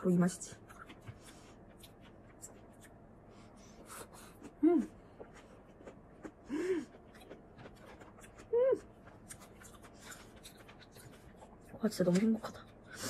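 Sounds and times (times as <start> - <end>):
woman chewing food: 0.4 - 13.0
woman humming mm: 4.4 - 5.0, 8.4 - 8.9.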